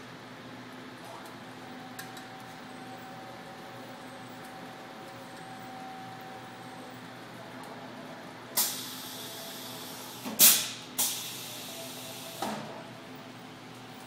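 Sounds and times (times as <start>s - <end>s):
compressed air hisses: 8.6s - 12.4s.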